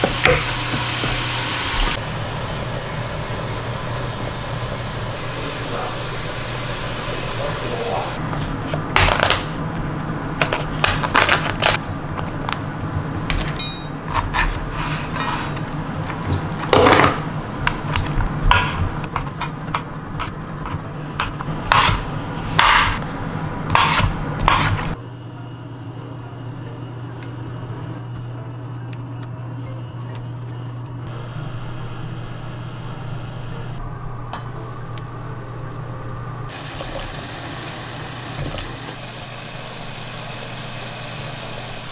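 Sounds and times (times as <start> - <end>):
range hood fan hum: 0.0 - 41.9
knife on cutting board: 23.7 - 24.9.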